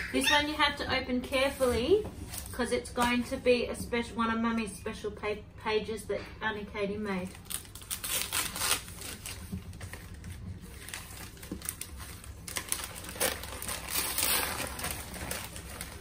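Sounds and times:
wrapping paper crinkling and tearing: 0:07.2 - 0:16.0.

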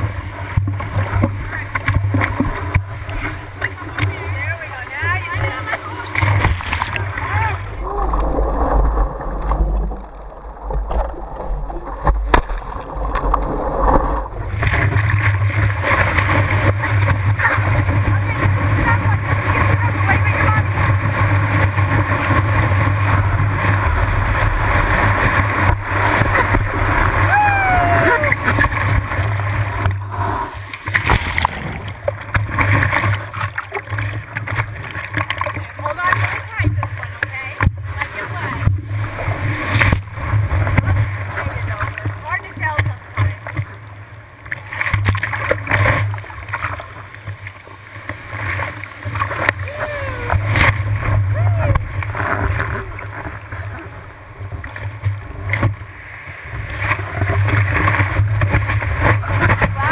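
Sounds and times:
low rumble: 0:00.0 - 0:33.4
water slapping: 0:00.0 - 0:59.9
whitewater rushing: 0:21.5 - 0:33.5, 0:49.2 - 0:53.4.

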